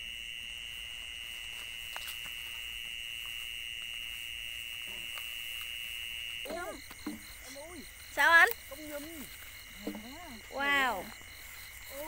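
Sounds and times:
insect high-pitched trill: 0.0s - 12.0s
faint ticks: 6.8s - 10.2s.

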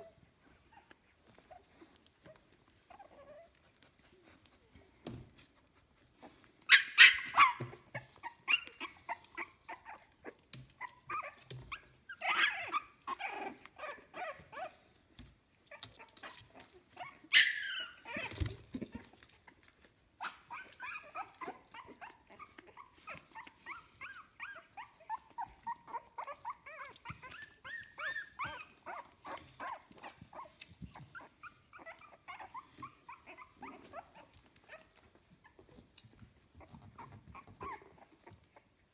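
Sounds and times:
puppies squeaking and whimpering: 6.0s - 38.9s.

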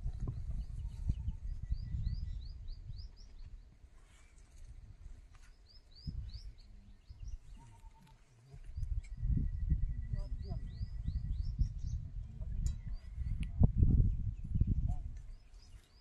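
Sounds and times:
bird chirping: 5.4s - 16.0s.

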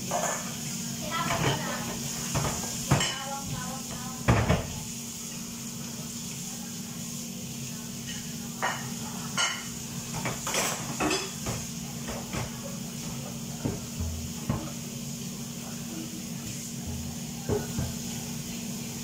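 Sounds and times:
metal pots and pans clinking: 0.0s - 0.5s, 8.1s - 12.6s
steady hum and hiss: 0.0s - 19.0s.

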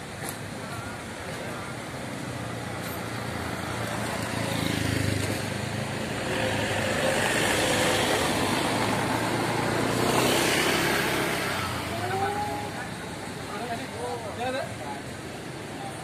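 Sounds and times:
traffic engine and road noise: 0.0s - 16.0s
motor scooter passing: 3.2s - 13.0s.

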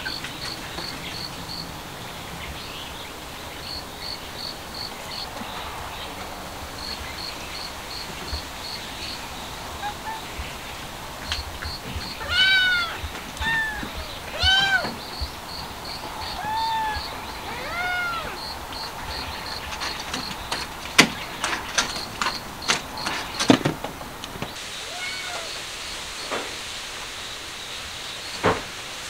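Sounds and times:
crickets chirping: 0.0s - 28.8s
cats meowing: 11.6s - 15.3s, 16.0s - 19.6s, 24.8s - 25.6s.

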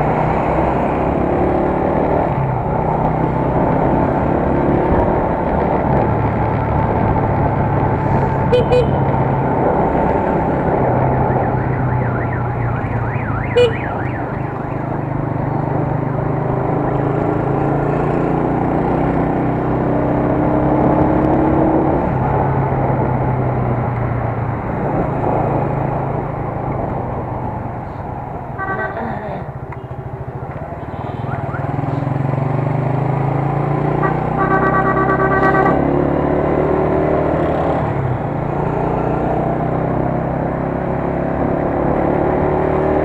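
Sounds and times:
road and wind noise: 0.0s - 43.0s
vehicle horn beep: 8.5s - 9.0s, 13.5s - 14.2s, 28.6s - 29.1s, 30.8s - 31.4s, 34.0s - 35.8s.

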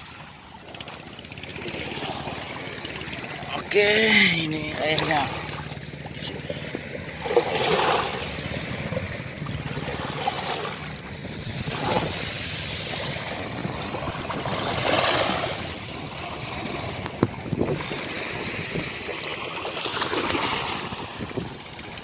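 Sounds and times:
small waves washing on sand: 0.0s - 22.0s.

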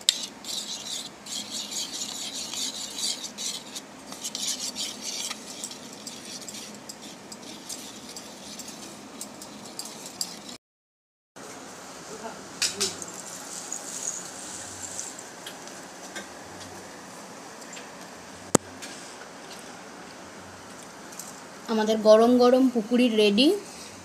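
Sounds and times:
spoon scraping sauce on plate: 0.0s - 10.6s.

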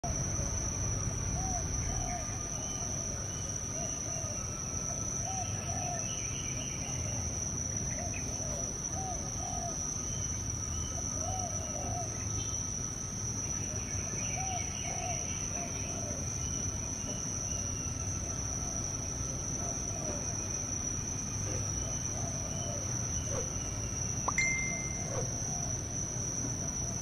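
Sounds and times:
insect drone: 0.0s - 27.0s
faint bird chirping: 21.4s - 25.8s.

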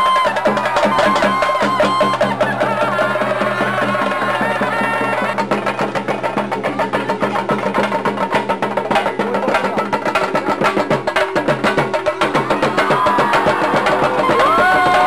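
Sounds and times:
drums in a fast rhythm: 0.0s - 15.0s.

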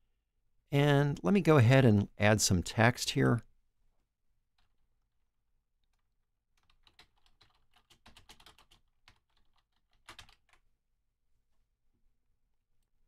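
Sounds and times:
faint keyboard typing: 5.8s - 10.7s.

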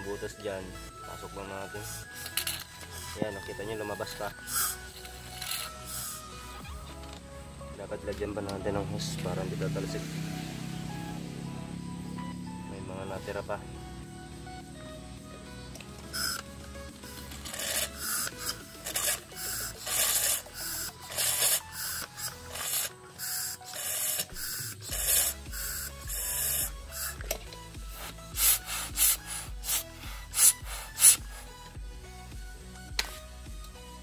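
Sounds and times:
hissing air bursts: 1.7s - 3.2s, 3.8s - 6.7s, 16.1s - 31.7s.

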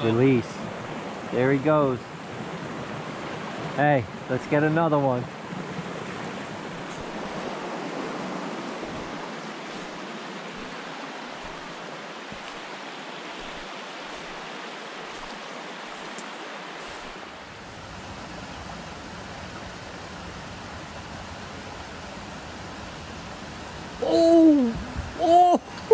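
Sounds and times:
brook rushing over stones: 5.4s - 18.8s.

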